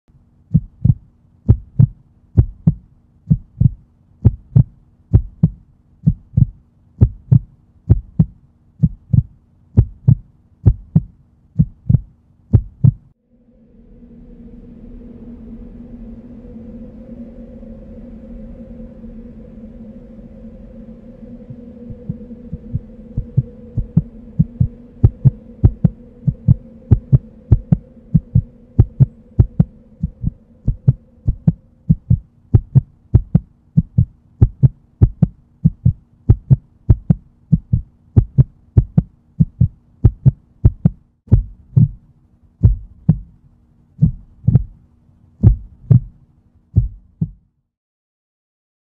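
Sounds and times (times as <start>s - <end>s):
low steady hum: 0.1s - 47.4s
deep heartbeat-like thumps: 0.5s - 13.2s, 21.2s - 43.4s, 44.0s - 44.8s, 45.4s - 46.2s, 46.8s - 47.5s
higher held tone: 13.2s - 32.0s.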